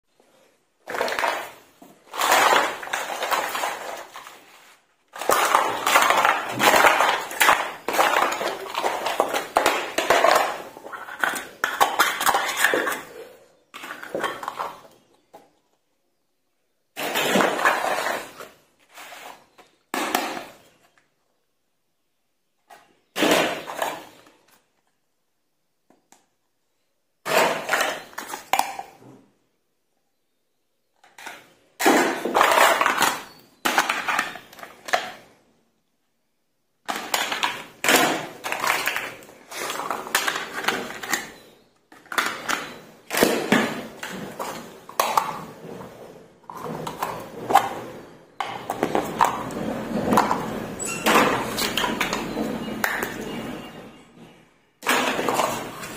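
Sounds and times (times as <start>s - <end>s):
plastic toy cookware clattering: 0.8s - 4.5s, 5.1s - 15.2s, 17.0s - 18.5s, 27.2s - 29.0s, 31.0s - 35.3s, 36.8s - 54.0s, 54.8s - 55.9s.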